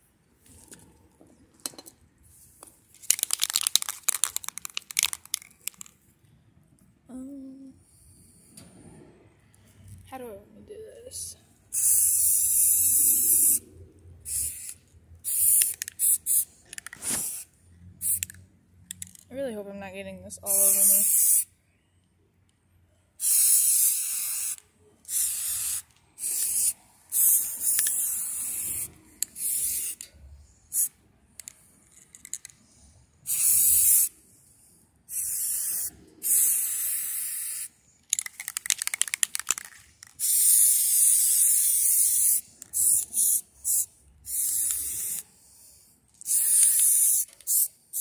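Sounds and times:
spray paint can hissing: 2.3s - 5.9s, 11.7s - 13.6s, 14.2s - 19.2s, 20.5s - 21.5s, 23.2s - 30.1s, 30.7s - 32.6s, 33.2s - 34.2s, 35.1s - 48.0s.

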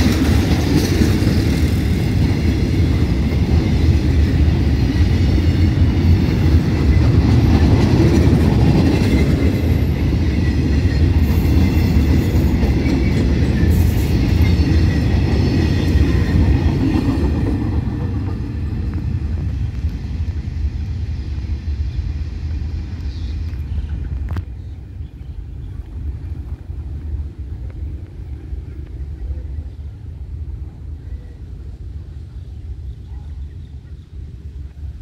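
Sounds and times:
clickety-clack of wheels: 0.0s - 20.4s
freight train wheels rumbling: 0.0s - 35.0s.

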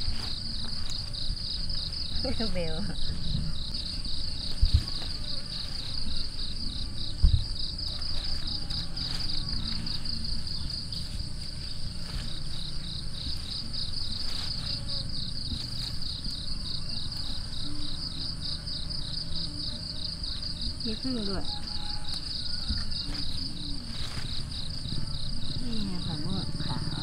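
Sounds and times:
insects chirping: 0.0s - 27.0s
thump: 7.2s - 7.6s.

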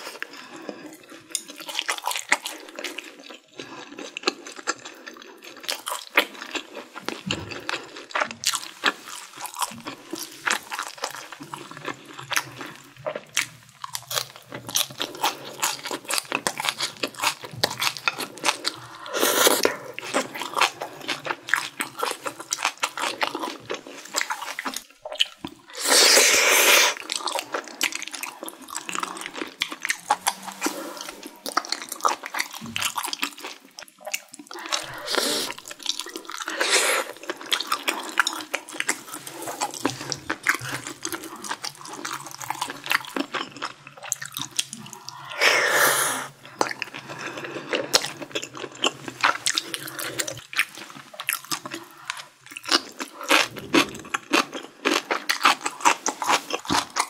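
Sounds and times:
wet chewing and lip smacks: 0.1s - 25.8s, 26.9s - 45.4s.

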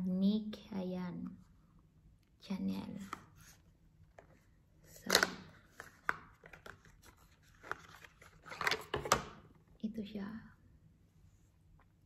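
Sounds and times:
woman speaking: 2.4s - 3.2s, 9.8s - 10.6s.

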